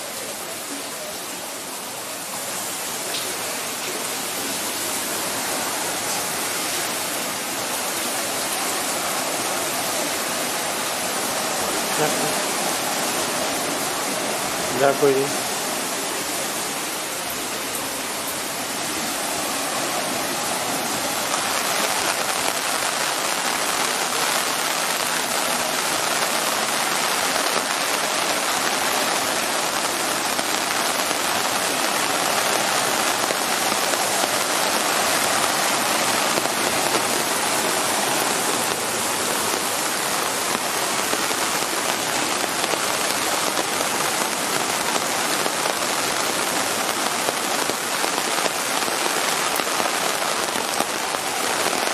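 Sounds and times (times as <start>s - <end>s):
rain falling on pavement: 0.0s - 51.9s.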